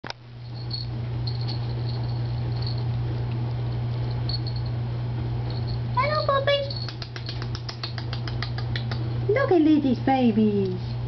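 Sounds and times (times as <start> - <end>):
steady low hum: 0.1 - 11.0.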